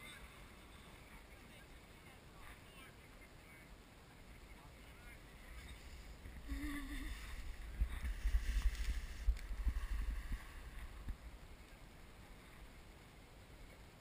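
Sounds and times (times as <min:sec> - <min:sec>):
wind buffeting microphone: 0:05.7 - 0:11.6
wind thumps on microphone: 0:07.1 - 0:11.4.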